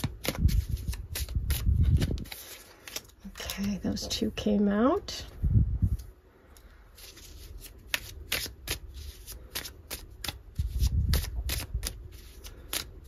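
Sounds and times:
cards shuffled by hand: 0.0s - 3.8s, 7.0s - 13.0s.

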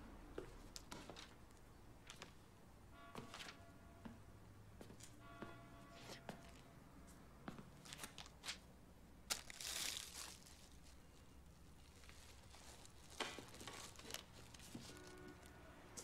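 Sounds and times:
faint crinkling rustle: 9.3s - 15.6s.

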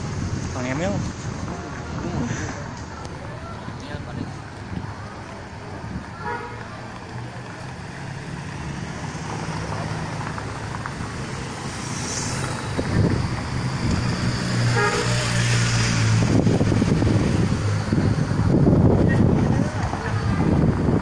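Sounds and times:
traffic engine hum: 0.0s - 21.0s
horn toot: 14.6s - 15.5s.

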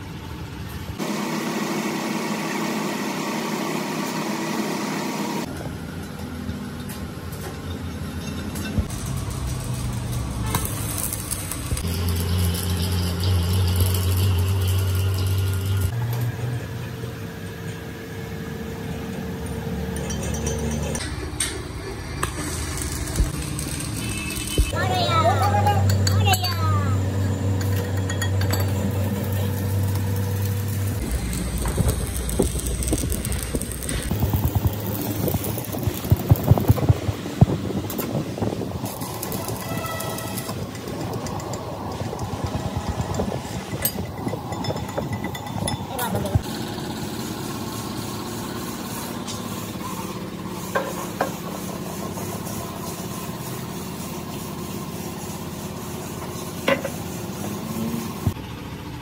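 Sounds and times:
welding machine hum: 8.7s - 26.1s, 26.8s - 50.8s
welding arc crackling: 8.8s - 16.0s, 21.0s - 25.3s, 28.6s - 44.2s
low rumble: 28.9s - 39.6s.

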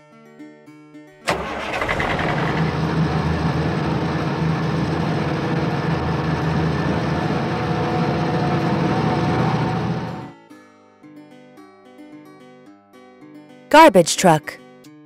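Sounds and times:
truck engine humming: 1.3s - 10.3s.

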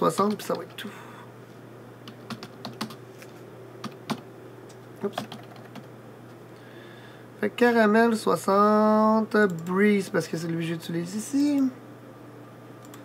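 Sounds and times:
keyboard keystrokes: 2.1s - 3.0s.

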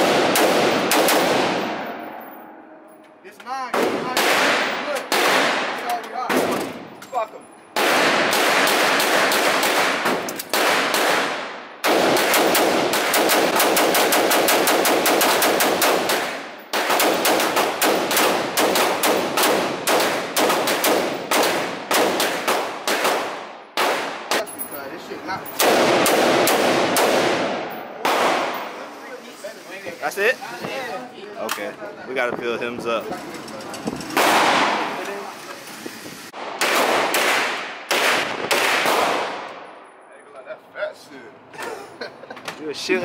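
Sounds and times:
rifle firing with room echo: 0.0s - 2.1s, 3.7s - 6.8s, 7.8s - 24.4s, 25.6s - 28.7s, 36.4s - 39.7s.

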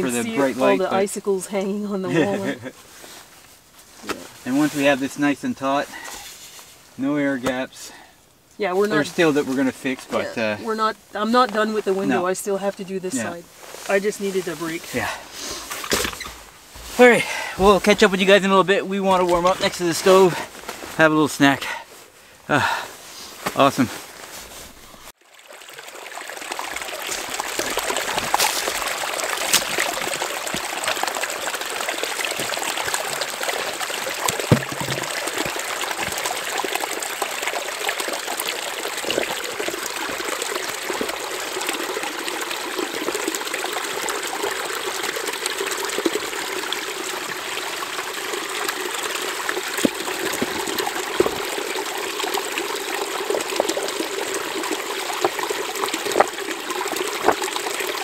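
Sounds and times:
stream trickling over rocks: 0.0s - 58.0s
small knocks: 34.3s - 36.2s.

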